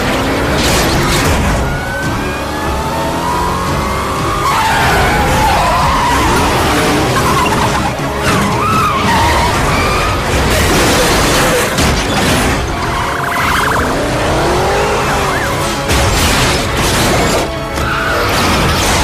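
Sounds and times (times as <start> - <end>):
car crash: 0.0 - 2.2, 4.4 - 13.9, 15.4 - 19.0
car engine revving: 0.0 - 19.0
tyres squealing: 1.7 - 14.0.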